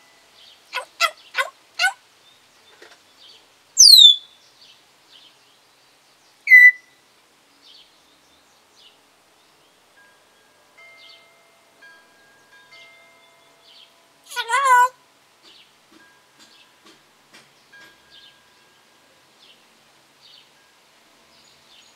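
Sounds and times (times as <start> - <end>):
parrot downward sweeping whistle: 3.8 - 4.2, 6.5 - 6.8
parrot short sharp whistle: 3.8 - 4.2, 6.5 - 6.8.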